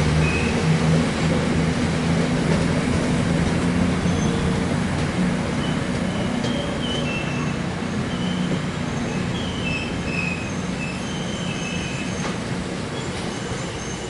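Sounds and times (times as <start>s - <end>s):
freight train rumbling past: 0.0s - 14.0s
high-pitched wheel squeals: 4.0s - 4.6s, 5.6s - 12.4s.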